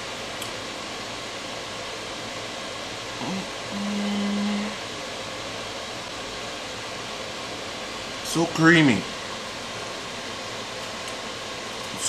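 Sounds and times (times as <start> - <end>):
man humming: 3.2 - 4.8.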